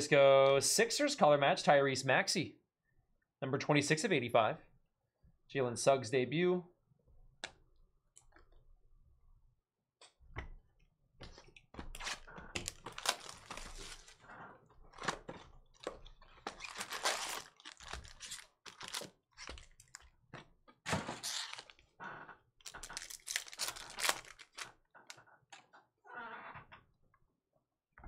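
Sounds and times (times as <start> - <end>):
foil wrappers crinkling: 12.0 - 14.2, 16.4 - 20.0, 21.1 - 21.8, 22.7 - 24.7.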